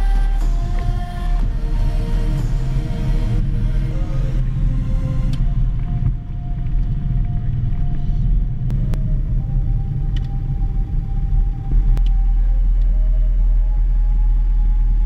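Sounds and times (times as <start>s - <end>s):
aircraft engine low rumble: 0.0s - 15.0s.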